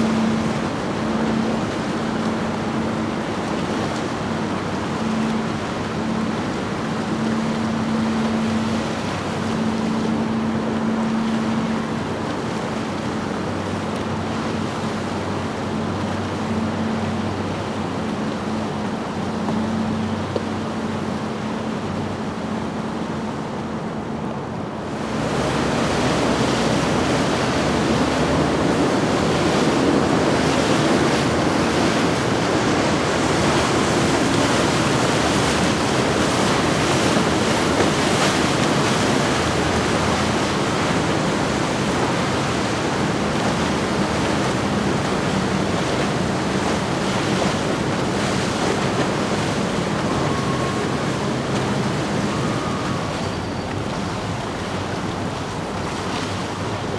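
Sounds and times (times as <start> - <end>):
boat engine hum: 0.0 - 56.9
wake water rushing: 0.0 - 56.9
wind on microphone: 0.0 - 56.9.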